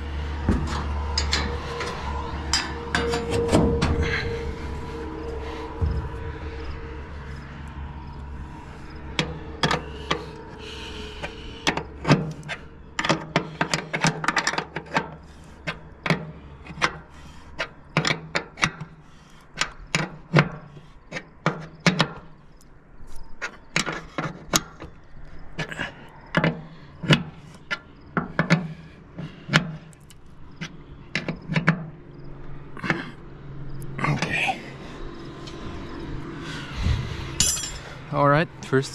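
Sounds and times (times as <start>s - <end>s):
wrench clinking on metal bolts: 37.4s - 37.9s.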